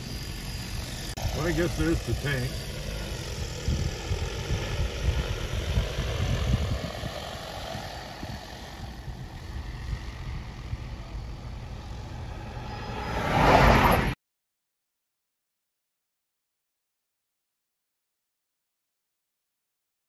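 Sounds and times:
drone rotors humming: 0.0s - 14.2s.

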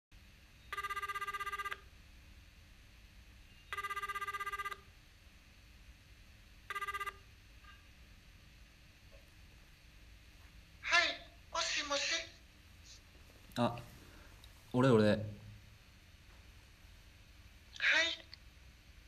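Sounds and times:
telephone electronic trilling ring: 0.7s - 1.9s, 3.7s - 4.9s, 6.7s - 7.2s.

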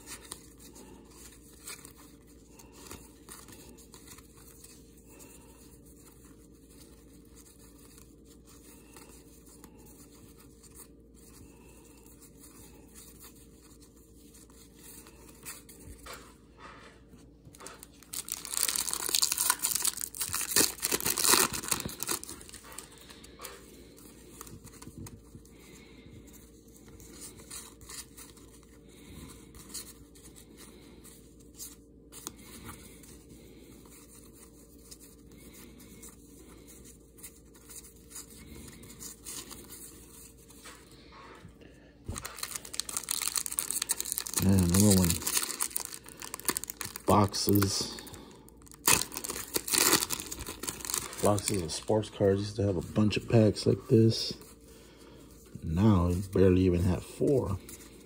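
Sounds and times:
cards rustling: 0.0s - 16.8s, 17.4s - 41.1s, 42.1s - 58.0s
foil wrapper tearing and crinkling: 17.8s - 23.3s, 42.1s - 52.6s.

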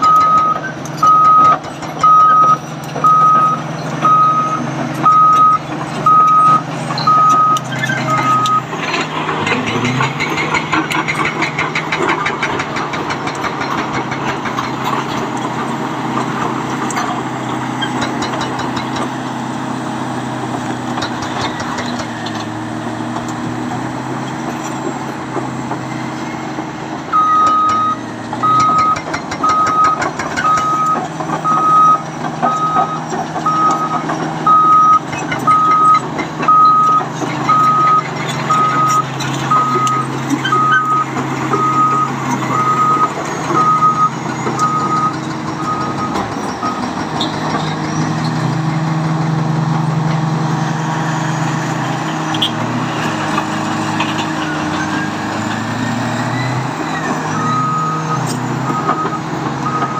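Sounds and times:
reverse alarm beeping: 0.0s - 8.7s, 27.1s - 46.9s, 57.4s - 59.9s
steel tracks clanking: 0.0s - 19.2s, 26.5s - 49.4s
bulldozer diesel engine running: 0.0s - 59.9s.

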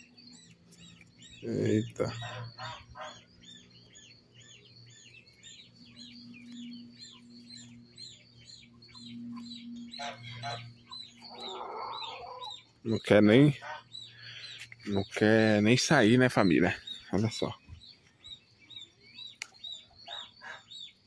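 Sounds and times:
bird chirping: 0.0s - 21.0s.

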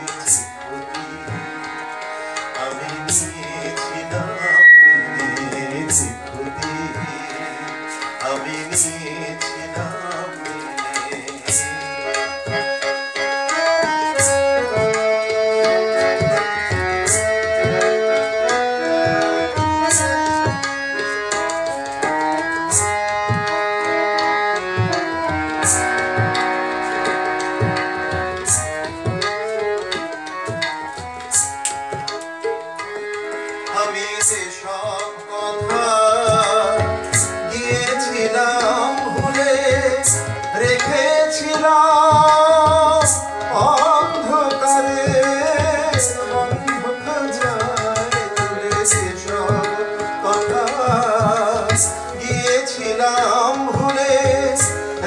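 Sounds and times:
sustained melodic instrument: 0.0s - 55.0s
tabla strokes: 0.1s - 55.0s
person singing: 2.6s - 11.4s.

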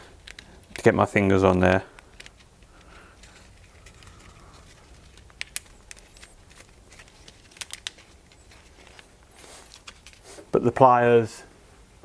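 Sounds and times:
bark rustling: 2.8s - 10.5s.

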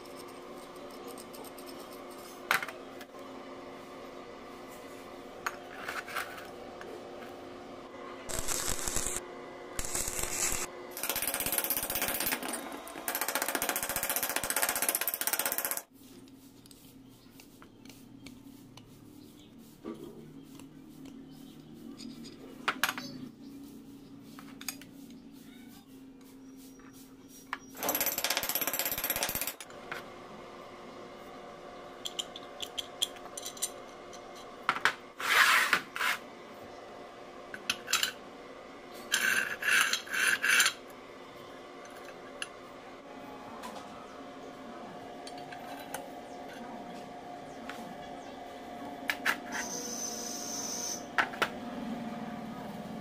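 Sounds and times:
welding arc crackling: 8.3s - 9.2s, 9.8s - 12.2s.

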